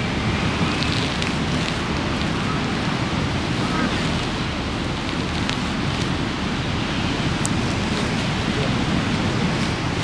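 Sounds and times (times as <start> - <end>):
low rushing beach noise: 0.0 - 10.0.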